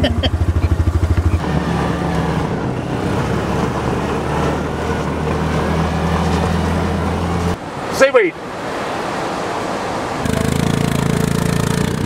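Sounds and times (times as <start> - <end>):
buggy engine running: 0.0 - 7.6, 10.2 - 12.0.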